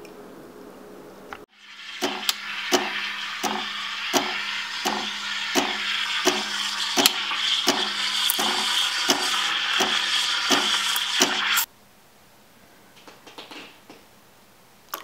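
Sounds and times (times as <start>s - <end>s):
steam wand hissing: 1.5s - 11.7s.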